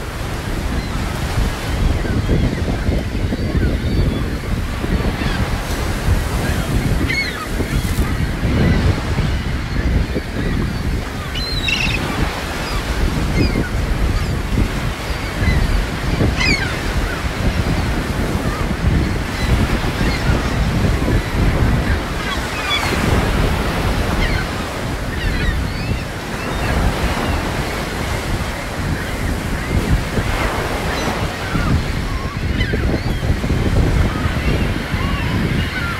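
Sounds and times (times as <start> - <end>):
ocean surf breaking: 0.0 - 35.9
wind buffeting microphone: 0.0 - 35.9
high bird calls: 11.2 - 13.6, 16.4 - 16.8.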